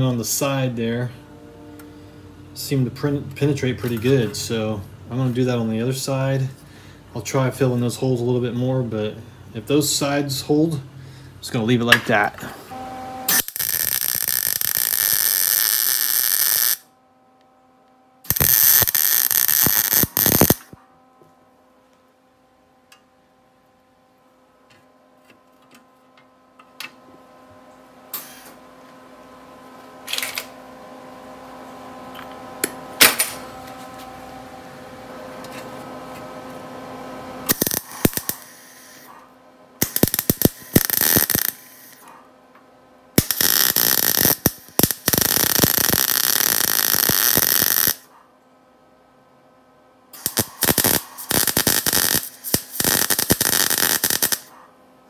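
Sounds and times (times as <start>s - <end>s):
faint steady hum: 0.0s - 55.0s
welder arcing: 13.3s - 16.9s, 18.3s - 20.8s, 28.1s - 28.6s, 37.4s - 39.1s, 39.8s - 42.1s, 43.2s - 48.1s, 50.2s - 54.5s.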